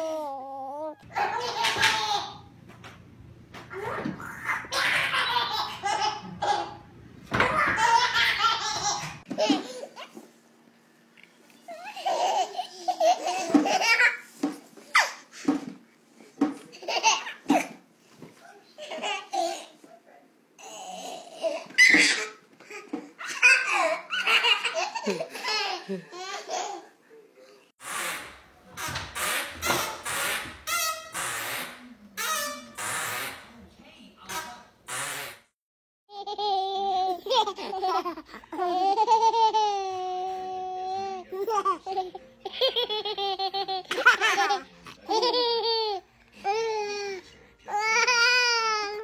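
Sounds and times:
baby laughing: 0:00.0 - 0:02.5, 0:03.7 - 0:06.8, 0:11.7 - 0:14.3, 0:36.1 - 0:49.0.

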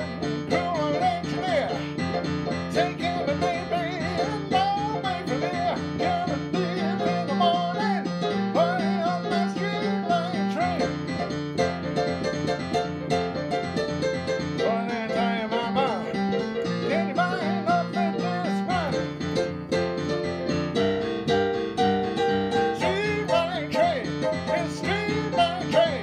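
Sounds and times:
man singing: 0:00.0 - 0:11.2, 0:14.6 - 0:19.3, 0:22.8 - 0:26.0
bouncing piano: 0:00.0 - 0:26.0.

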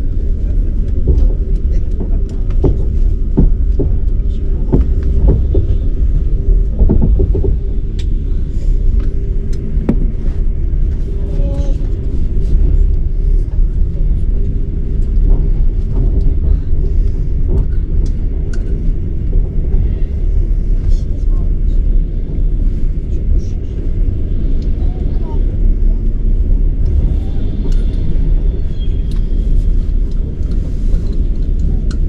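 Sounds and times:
train carriage rumbling: 0:00.0 - 0:32.0
wheels knocking and clicking: 0:00.8 - 0:11.0.

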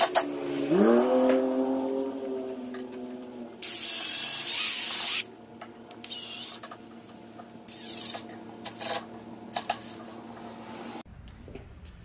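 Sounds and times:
cordless drill boring into wood: 0:03.6 - 0:05.3.

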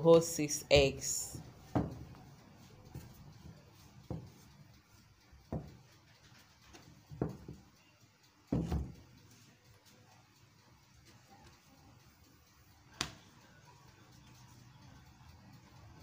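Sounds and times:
rolling pin knocking on wooden board: 0:01.7 - 0:02.1, 0:04.1 - 0:04.4, 0:05.5 - 0:05.8, 0:07.1 - 0:07.6, 0:08.5 - 0:09.0.

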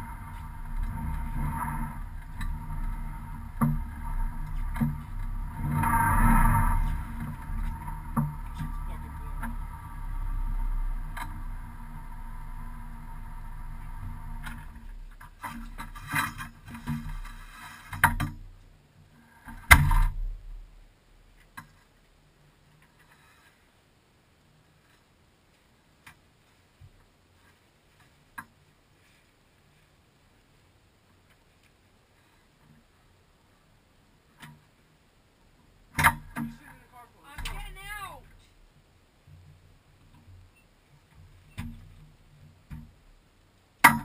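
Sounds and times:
car engine drone from cabin: 0:00.0 - 0:15.2.

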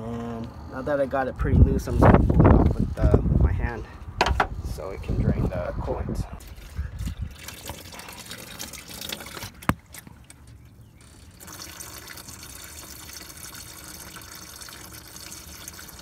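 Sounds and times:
coolant trickling: 0:06.4 - 0:16.0.

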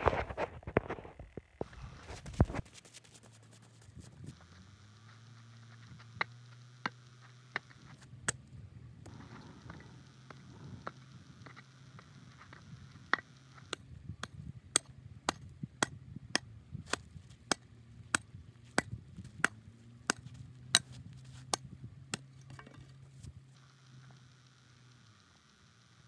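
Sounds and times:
pickaxe striking dirt: 0:12.5 - 0:23.1.

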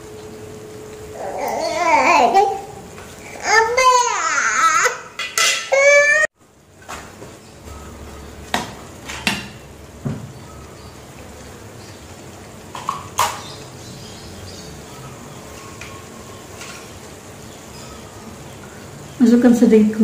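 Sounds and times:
food cooking in pan: 0:00.0 - 0:20.0
metal utensils clinking on pan: 0:05.2 - 0:05.8.

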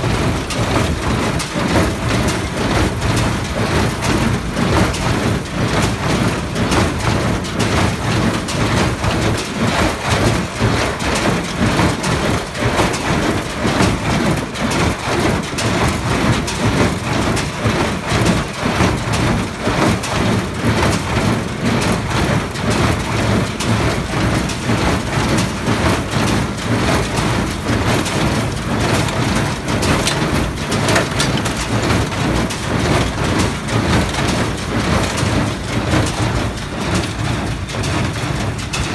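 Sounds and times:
baler mechanical clatter: 0:00.0 - 0:38.9
tractor engine running: 0:00.0 - 0:38.9.

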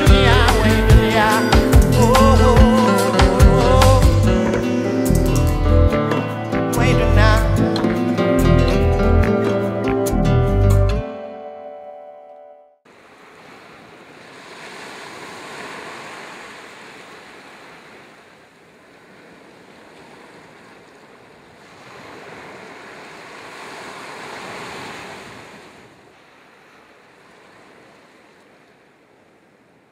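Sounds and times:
small waves breaking on beach: 0:12.9 - 0:29.9.

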